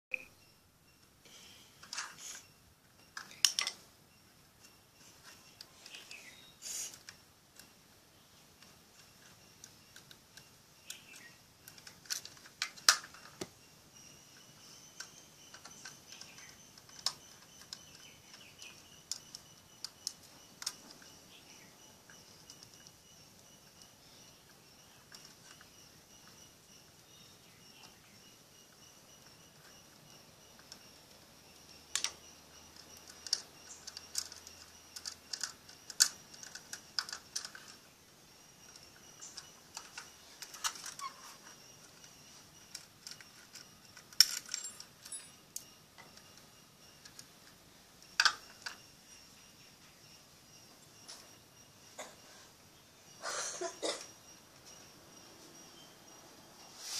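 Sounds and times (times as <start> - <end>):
small plastic clicks and taps: 3.0 - 3.8, 31.9 - 37.8, 47.0 - 48.8.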